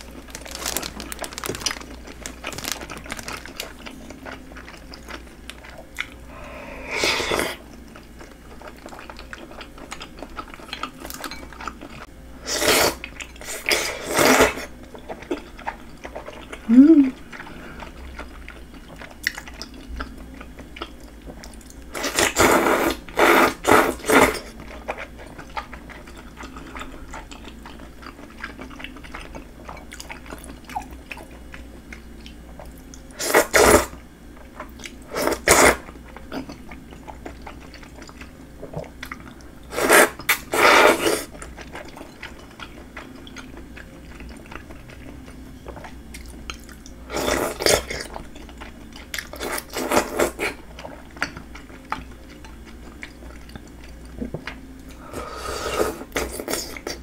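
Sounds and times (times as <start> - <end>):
quiet chewing: 0.0 - 6.5, 7.3 - 12.1, 14.5 - 57.0
person slurping noodles: 6.3 - 7.6, 39.7 - 41.3, 55.1 - 56.8.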